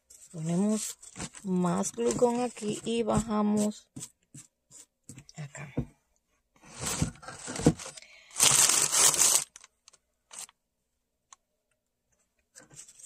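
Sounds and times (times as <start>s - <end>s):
paper crinkling and rustling: 0.0s - 3.0s, 6.8s - 10.5s.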